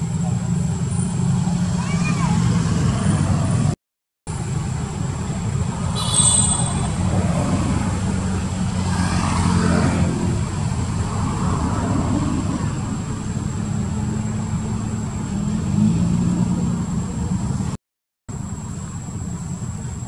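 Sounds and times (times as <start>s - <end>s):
thin high-pitched whine: 5.8s - 7.2s.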